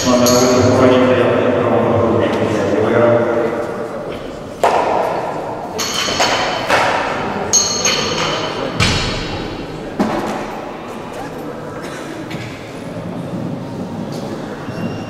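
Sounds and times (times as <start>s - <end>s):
weight plates knocking and clanking: 4.2s - 10.5s.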